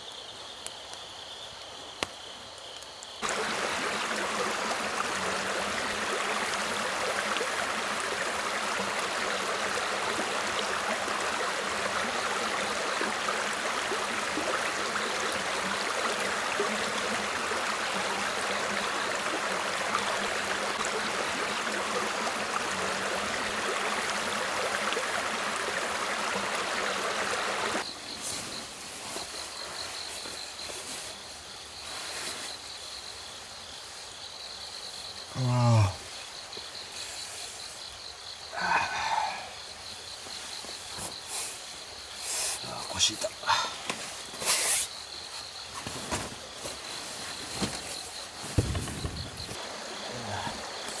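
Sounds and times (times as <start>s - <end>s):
night insects chirping: 0.0s - 51.0s
flowing stream rushing: 3.2s - 27.8s, 46.0s - 51.0s.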